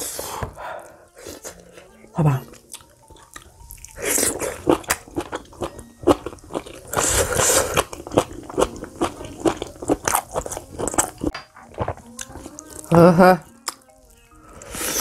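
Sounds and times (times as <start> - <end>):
close-up wet chewing: 2.4 - 12.9.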